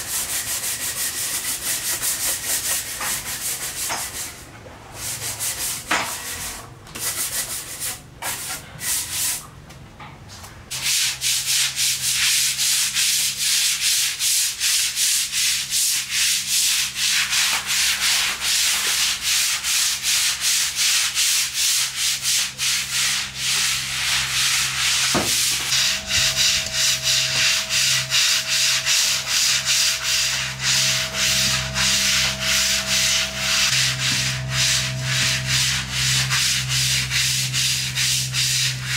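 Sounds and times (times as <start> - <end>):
brush scrubbing tiled floor: 0.0 - 9.4, 10.7 - 38.9
brush scrubbing wet wood: 10.7 - 38.9.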